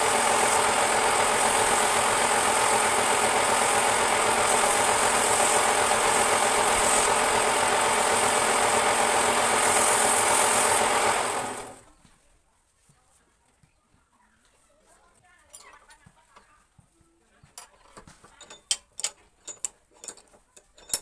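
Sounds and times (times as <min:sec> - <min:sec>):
sandpaper sanding wood: 0:00.0 - 0:11.1
wood lathe running: 0:00.0 - 0:11.8.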